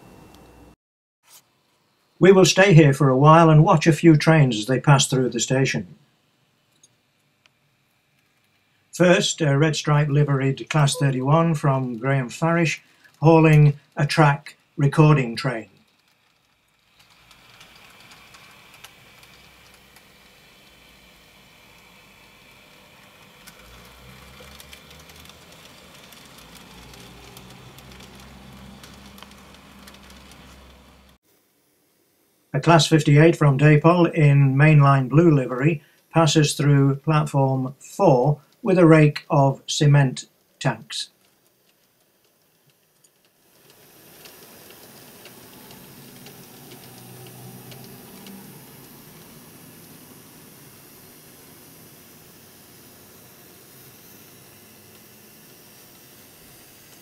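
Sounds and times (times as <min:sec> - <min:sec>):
model train motor hum: 0:07.8 - 0:31.2, 0:41.1 - 0:57.0
wheels clicking on track: 0:14.9 - 0:31.2, 0:41.2 - 0:51.5.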